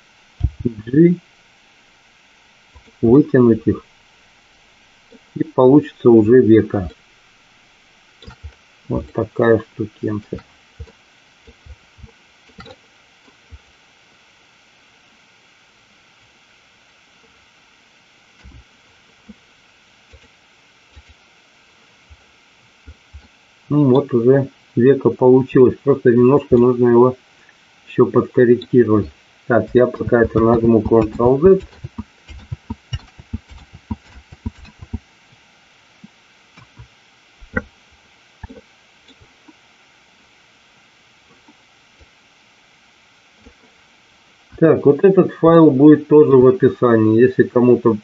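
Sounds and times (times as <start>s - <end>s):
microphone background hiss: 0.0s - 48.0s
soft low thumps: 0.4s - 0.8s, 29.5s - 35.1s.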